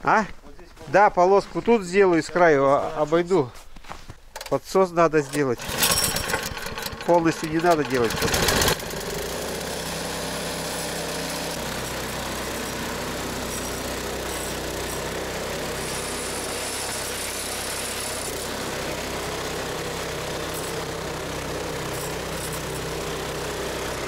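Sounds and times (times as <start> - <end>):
snowblower engine running: 5.2 - 24.0.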